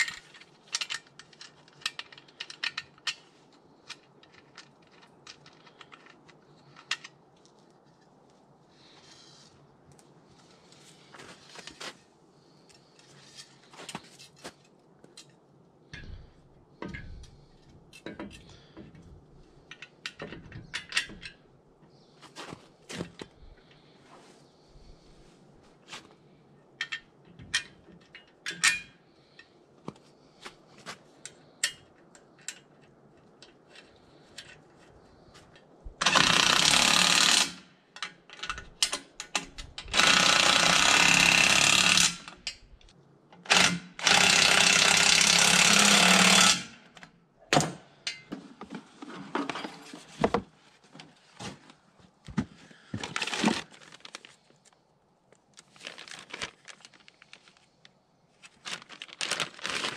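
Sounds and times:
metal parts clicking and tapping: 0.0s - 7.2s, 15.1s - 21.4s, 26.8s - 29.6s, 35.5s - 48.7s
power tool running: 39.9s - 42.3s.

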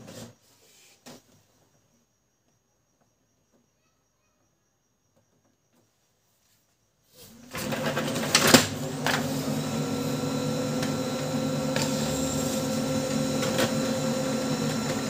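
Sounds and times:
printer motors humming: 7.4s - 15.0s
printer paper feed clicks: 7.5s - 9.6s, 11.6s - 15.0s.

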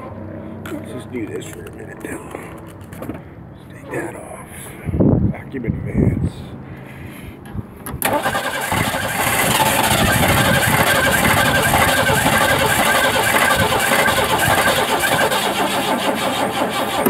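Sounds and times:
engine running: 0.0s - 17.0s
engine cranking on starter: 7.8s - 17.0s.

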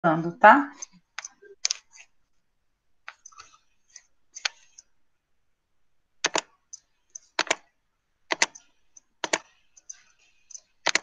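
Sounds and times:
computer keys clicking: 0.8s - 1.8s, 3.1s - 4.8s, 6.2s - 7.7s, 8.3s - 11.0s.

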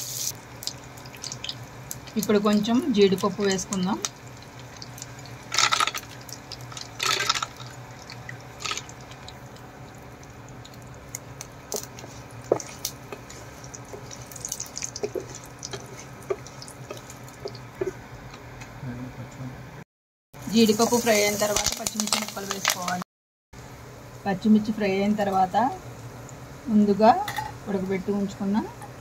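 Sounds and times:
nuts sizzling in hot oil: 0.0s - 18.0s, 20.4s - 23.0s.

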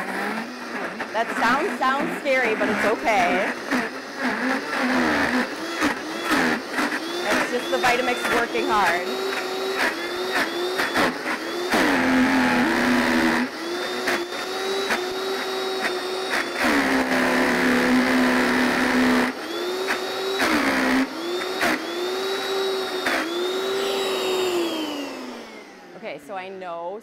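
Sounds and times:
blender motor running hard: 0.0s - 26.0s.

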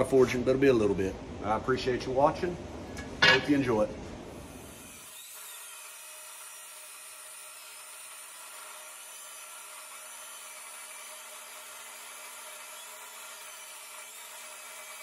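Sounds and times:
chop saw cutting steel: 4.5s - 15.0s.

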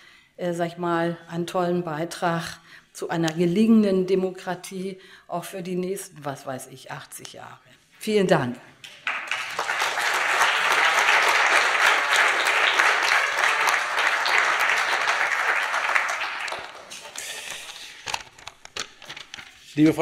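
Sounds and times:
audience applauding: 8.8s - 17.6s.

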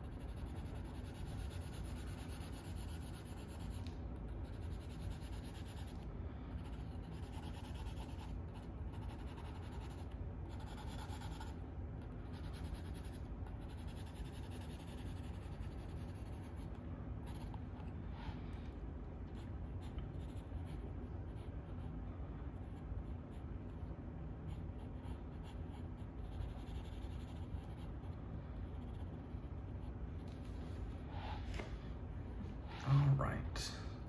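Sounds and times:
drawing tool scratching paper: 0.0s - 6.0s, 6.6s - 11.6s, 12.3s - 17.6s, 24.5s - 30.3s.

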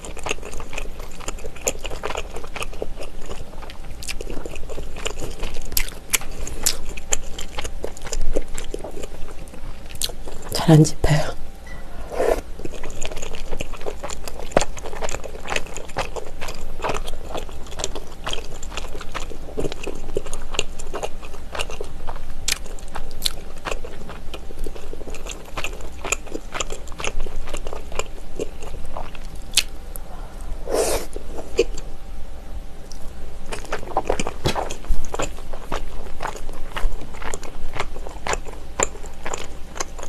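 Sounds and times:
wet chewing clicks: 32.9s - 40.0s.

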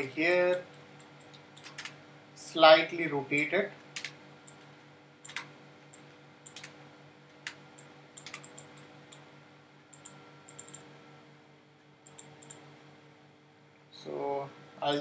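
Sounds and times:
faint steady hum: 0.0s - 15.0s
mouse and keyboard clicks: 8.2s - 9.2s, 10.0s - 10.8s.

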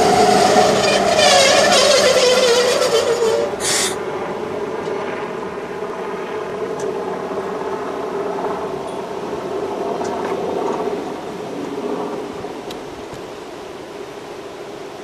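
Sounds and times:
electric railcar humming: 0.0s - 4.6s.

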